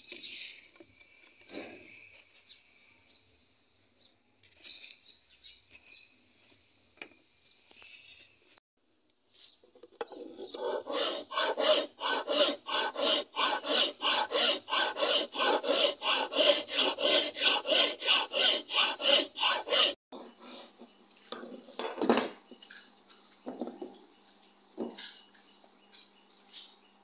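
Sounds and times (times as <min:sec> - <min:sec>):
file rasping on wood: 0:10.4 - 0:20.0.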